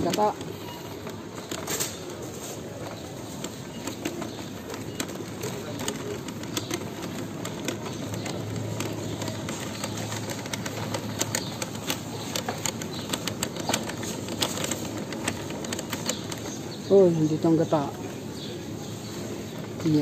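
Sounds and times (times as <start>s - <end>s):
background murmur of store: 0.0s - 20.0s
shopping cart wheels rattling: 0.0s - 20.0s.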